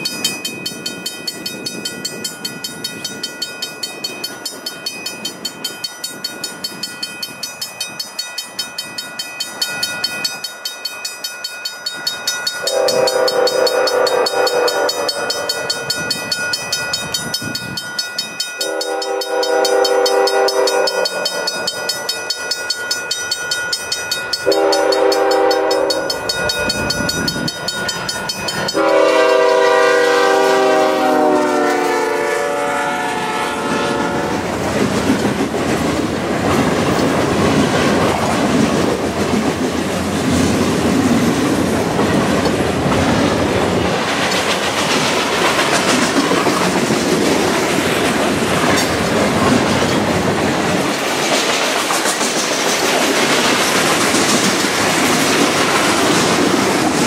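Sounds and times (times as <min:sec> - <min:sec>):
crossing bell ringing: 0:00.0 - 0:35.8
train rumble: 0:00.0 - 0:57.0
locomotive air horn blasts: 0:12.6 - 0:15.5, 0:18.6 - 0:21.2, 0:24.5 - 0:26.0, 0:28.8 - 0:34.4.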